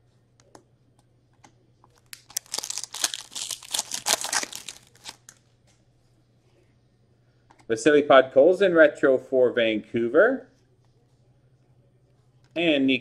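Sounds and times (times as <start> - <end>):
wrapper crinkling: 2.0 - 5.4.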